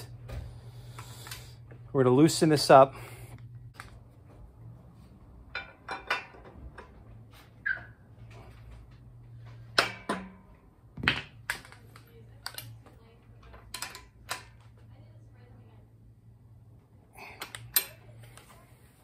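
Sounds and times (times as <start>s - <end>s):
hand tools clicking and knocking: 5.4s - 7.0s.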